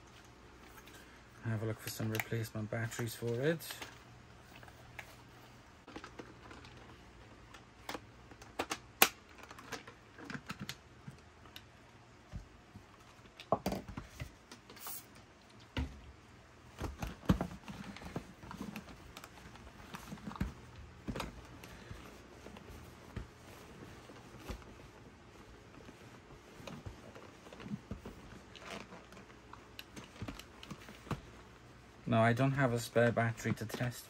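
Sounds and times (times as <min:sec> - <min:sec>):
cloth rubbing plastic: 0:17.6 - 0:32.0.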